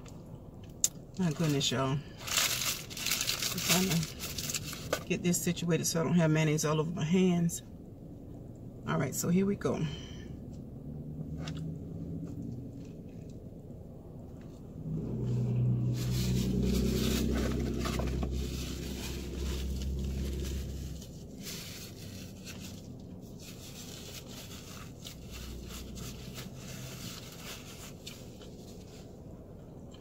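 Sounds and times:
vehicle engine rumble passing: 0:10.0 - 0:30.0.

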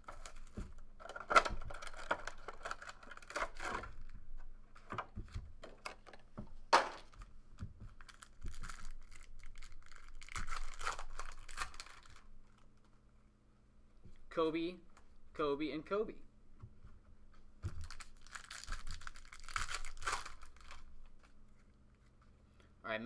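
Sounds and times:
wrappers crinkling and tearing: 0:00.0 - 0:04.5, 0:08.0 - 0:12.9, 0:17.7 - 0:22.2.

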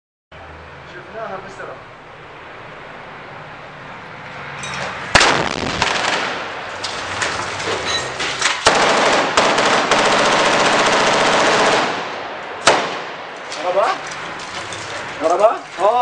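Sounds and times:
scattered gunshots: 0:05.1 - 0:06.5, 0:08.2 - 0:13.2
rocket launch blast: 0:05.1 - 0:06.6
rapid automatic rifle fire: 0:05.2 - 0:06.5, 0:08.6 - 0:13.1.

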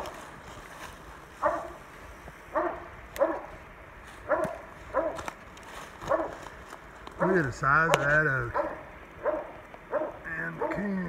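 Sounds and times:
dog barking: 0:01.4 - 0:01.8, 0:02.5 - 0:03.5, 0:04.2 - 0:05.2, 0:06.0 - 0:06.4, 0:07.2 - 0:10.9.

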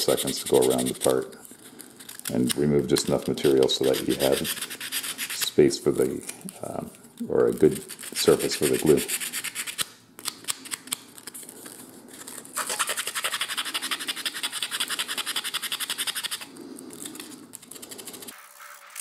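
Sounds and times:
sanding sponge scratching wood: 0:00.0 - 0:01.1, 0:03.5 - 0:05.5, 0:07.8 - 0:09.8, 0:12.6 - 0:16.5.

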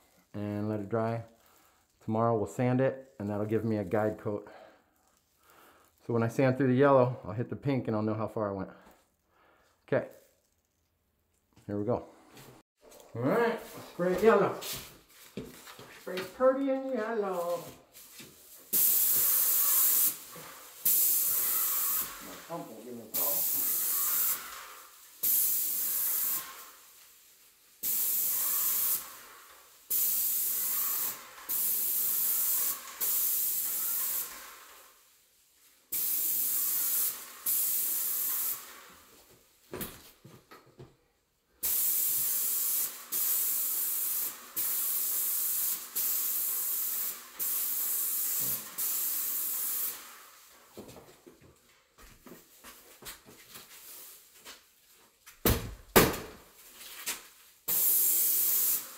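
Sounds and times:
spray gun hissing in bursts: 0:16.8 - 0:35.2, 0:35.8 - 0:39.1, 0:41.6 - 0:50.5, 0:57.6 - 0:58.9.

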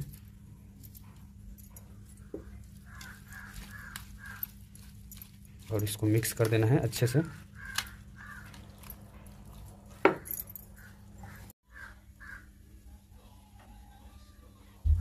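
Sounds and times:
crows cawing: 0:02.8 - 0:04.6, 0:07.2 - 0:09.0, 0:10.2 - 0:12.7
low steady hum: 0:12.7 - 0:15.0.

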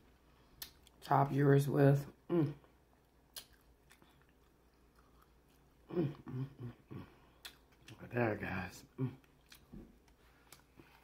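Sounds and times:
soft mouth sounds: 0:02.2 - 0:08.0
crunchy taco chewing: 0:02.8 - 0:06.3, 0:09.2 - 0:11.0.

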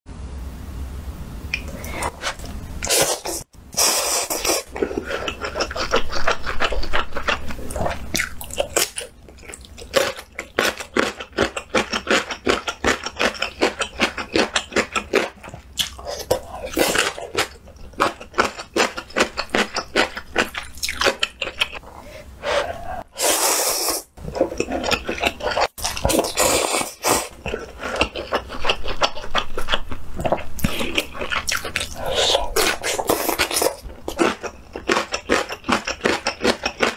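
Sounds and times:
person slurping noodles: 0:01.7 - 0:08.3, 0:22.4 - 0:29.5, 0:30.3 - 0:36.9.

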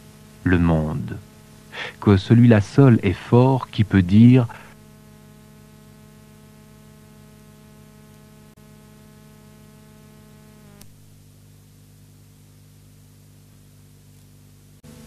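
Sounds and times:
background hiss: 0:00.0 - 0:15.0
electrical hum: 0:00.0 - 0:15.0
click: 0:08.1 - 0:08.3, 0:10.8 - 0:11.0.

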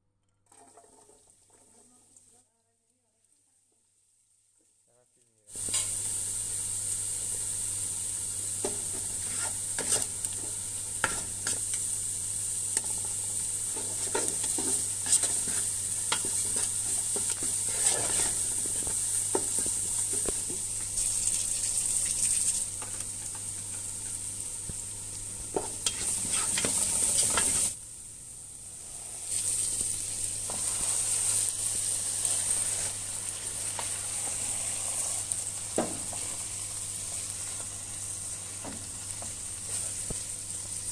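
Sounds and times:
onions sizzling in hot oil: 0:05.5 - 0:40.9
wooden spatula scraping a pot: 0:08.6 - 0:10.2, 0:13.6 - 0:20.7, 0:25.6 - 0:27.7.

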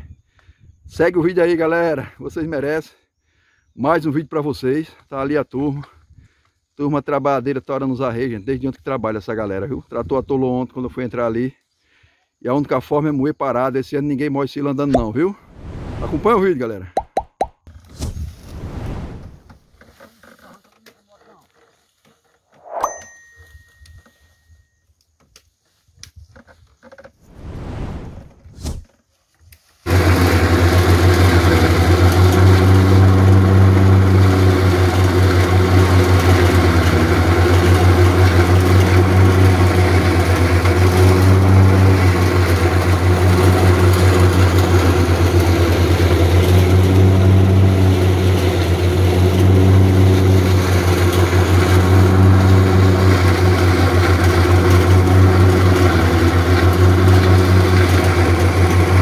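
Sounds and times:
forage chopper cutting stalks: 0:28.4 - 0:59.0
tractor diesel engine running: 0:29.9 - 0:59.0.

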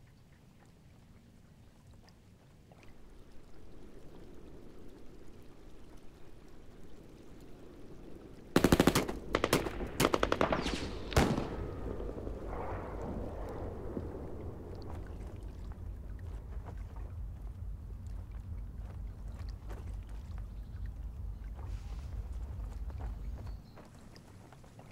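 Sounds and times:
low rumble: 0:02.8 - 0:23.7
machine-gun fire bursts: 0:08.6 - 0:12.2.

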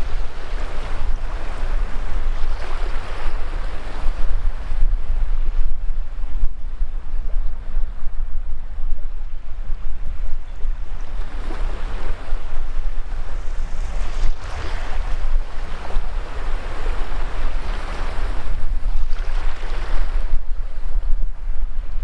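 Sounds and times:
wind rumble on microphone: 0:00.0 - 0:22.0
small waves washing on sand: 0:10.8 - 0:21.0.

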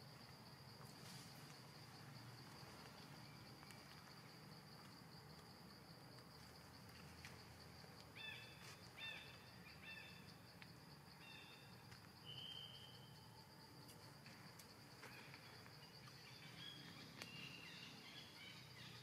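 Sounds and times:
high insect drone: 0:00.0 - 0:19.0
short chirping calls: 0:12.2 - 0:13.1.

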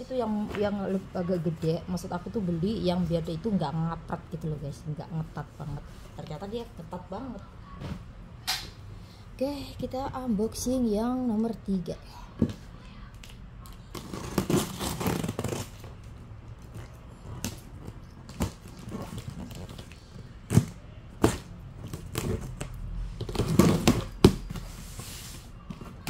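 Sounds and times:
packing tape tearing: 0:13.8 - 0:15.9.

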